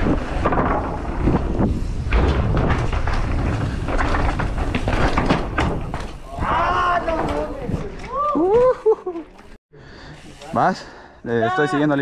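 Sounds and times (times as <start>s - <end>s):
bike knocks and rattles: 0.0s - 9.5s
bike tyre noise: 0.0s - 11.1s.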